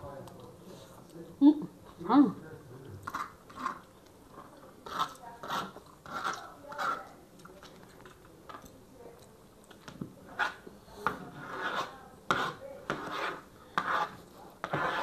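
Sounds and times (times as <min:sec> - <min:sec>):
metal forks scraping a tray: 0:04.8 - 0:07.1.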